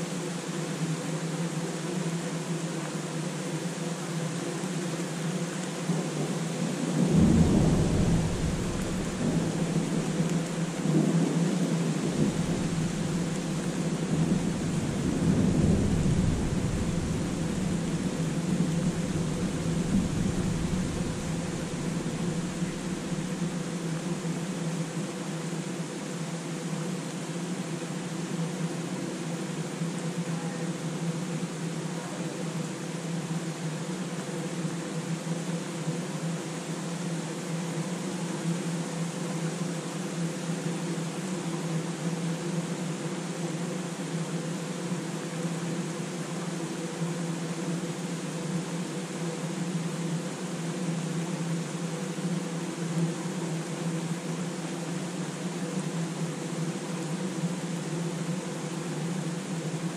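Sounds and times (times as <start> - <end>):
steady hiss: 0.0 - 59.9
low mechanical hum: 4.4 - 26.1
rain hissing: 5.9 - 24.9
thunder rumbling low: 6.9 - 23.7.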